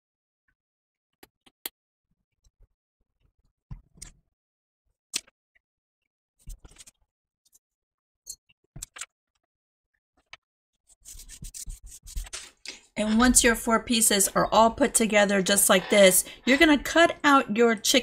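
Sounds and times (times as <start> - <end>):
paper rustling: 11.0 - 12.6.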